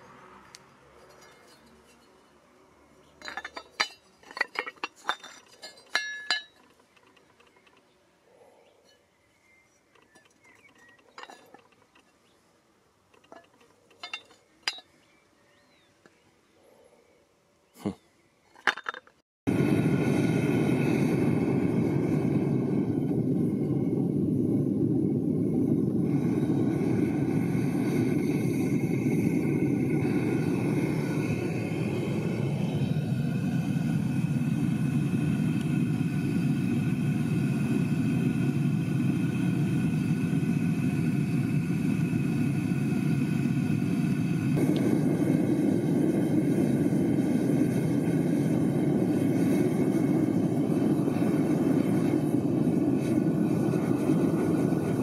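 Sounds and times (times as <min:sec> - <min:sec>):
furnace gas burner running: 0:19.5 - 0:55.0.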